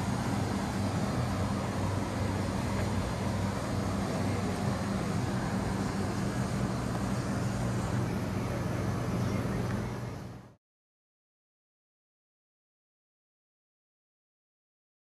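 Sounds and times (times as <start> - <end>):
broad hiss: 0.0 - 9.1
machinery hum: 0.0 - 10.6.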